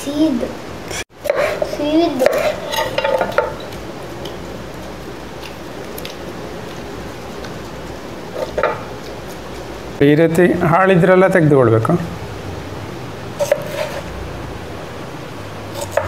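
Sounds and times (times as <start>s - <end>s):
steady background hiss: 0.0s - 16.0s.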